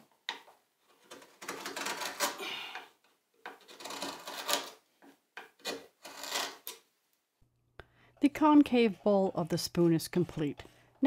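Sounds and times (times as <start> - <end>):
gouge scraping wood: 3.5 - 6.7.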